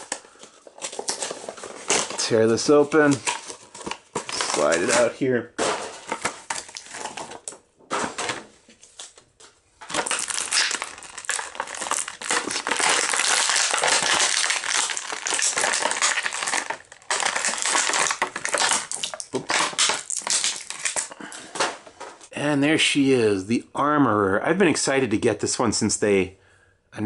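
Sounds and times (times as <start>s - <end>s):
plastic packaging crackling: 0.0s - 8.4s, 9.8s - 22.3s.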